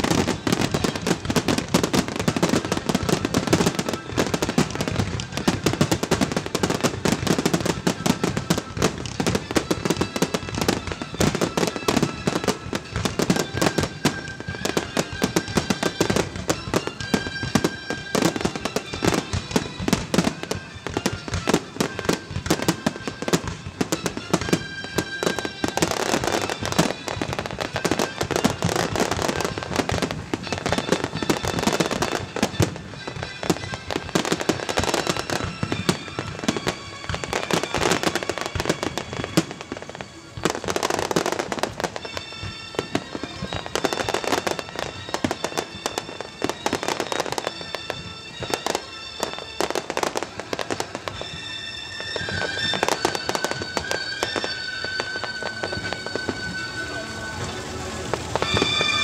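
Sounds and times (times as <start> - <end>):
fireworks bangs and crackling: 0.0 - 59.0.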